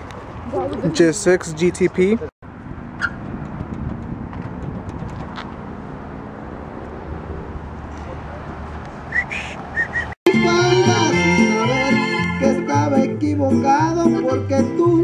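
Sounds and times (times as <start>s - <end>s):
high rising whistles: 9.1s - 10.2s.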